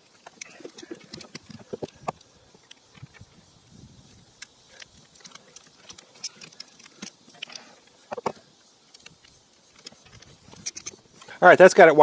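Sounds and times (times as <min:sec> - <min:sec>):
screwdriver and pliers clicking on metal: 0:04.3 - 0:11.4.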